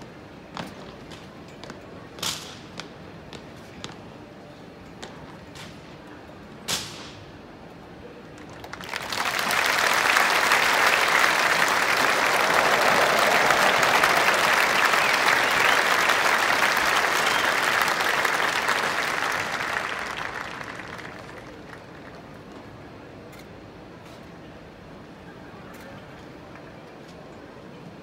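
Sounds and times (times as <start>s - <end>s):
stadium audience applauding: 8.4s - 22.6s.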